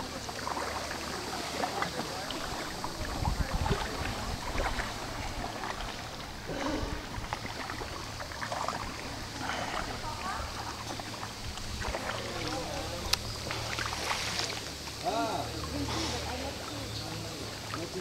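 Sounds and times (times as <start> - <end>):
canoe paddle splashing: 0.0 - 18.0
wind buffeting microphone: 2.7 - 8.2
water drips: 7.1 - 15.8.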